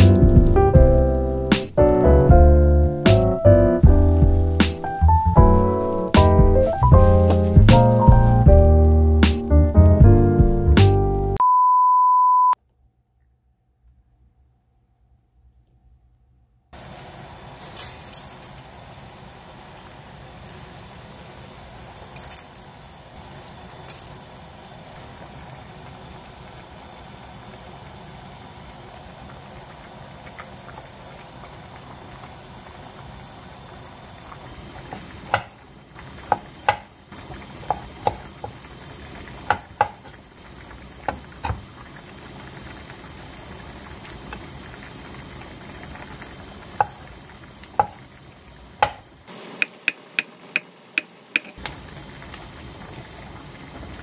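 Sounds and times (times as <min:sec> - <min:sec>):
water boiling and bubbling: 0:00.0 - 0:10.8, 0:16.8 - 0:54.0
knife chopping on wooden board: 0:36.3 - 0:36.9, 0:39.5 - 0:40.0, 0:48.8 - 0:49.0.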